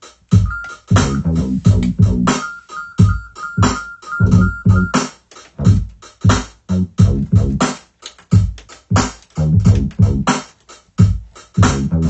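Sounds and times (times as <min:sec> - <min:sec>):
chopped sample stabs with bass: 0:00.3 - 0:02.4, 0:03.0 - 0:07.8, 0:08.4 - 0:10.4, 0:11.0 - 0:12.0
drum hits: 0:00.4 - 0:05.1.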